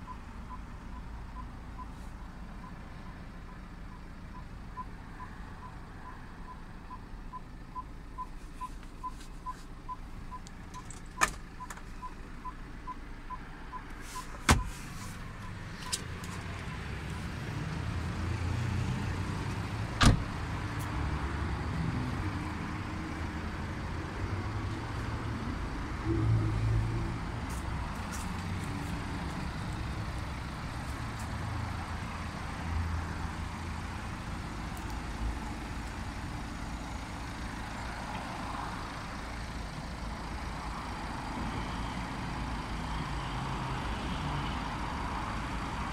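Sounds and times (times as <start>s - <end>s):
car door shutting: 14.1s - 15.2s, 20.0s - 20.4s.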